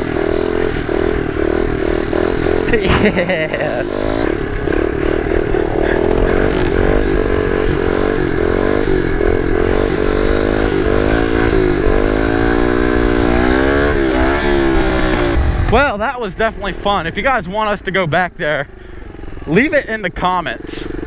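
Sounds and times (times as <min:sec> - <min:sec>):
small motorcycle engine revving: 0:00.0 - 0:15.9, 0:18.4 - 0:21.0
wind rumbling on microphone: 0:14.0 - 0:17.3.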